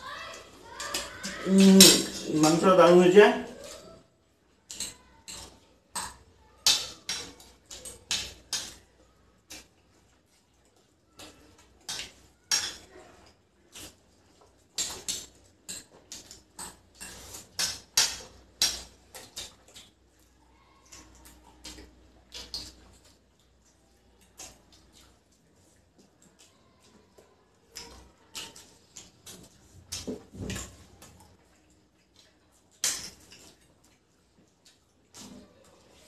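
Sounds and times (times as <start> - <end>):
cutlery clinking and scraping plates: 11.9 - 12.9, 14.8 - 19.0.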